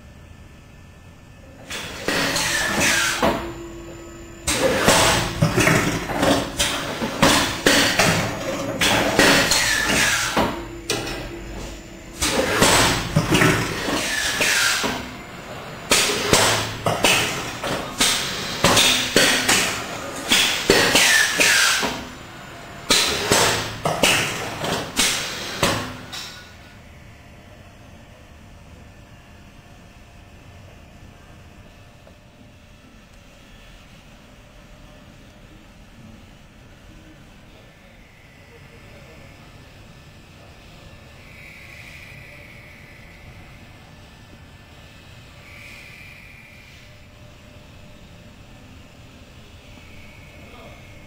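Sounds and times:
machine clattering knocks: 4.5s - 15.2s, 15.9s - 22.0s.

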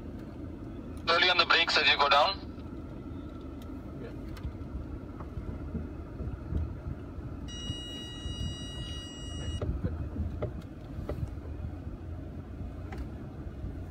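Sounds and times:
high-pitched tone: 7.5s - 9.6s.

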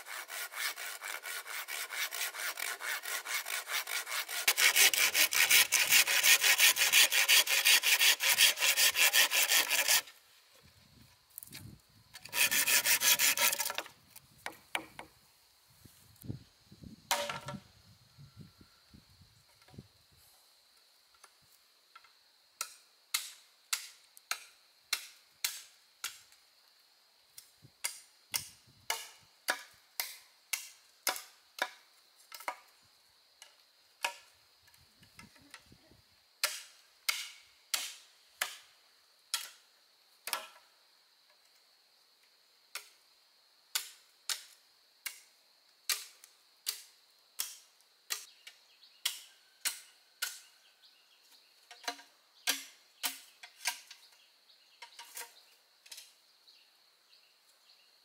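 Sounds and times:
faint insect hum: 0.0s - 58.0s
hand tool striking wood: 12.2s - 15.1s, 17.1s - 17.6s.

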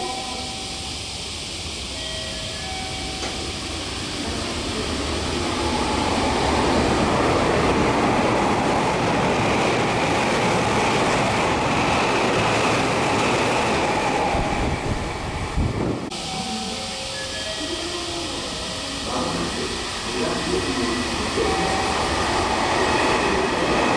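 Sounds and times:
train passing at speed: 0.0s - 23.9s.

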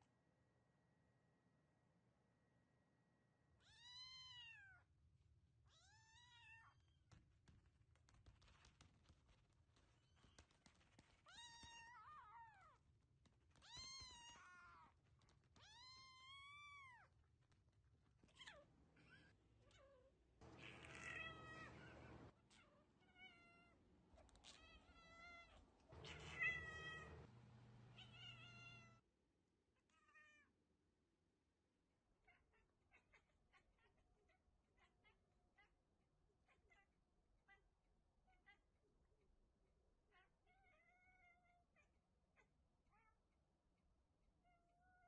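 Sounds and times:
cats meowing: 13.6s - 17.1s, 18.2s - 29.0s
kitten mewing: 18.3s - 27.3s.

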